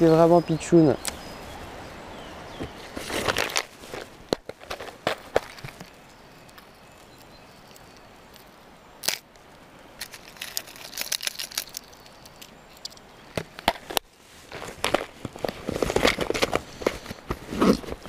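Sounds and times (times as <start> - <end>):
river running: 0.0 - 18.0
plastic lures rattling in box: 10.0 - 13.0, 14.8 - 18.0.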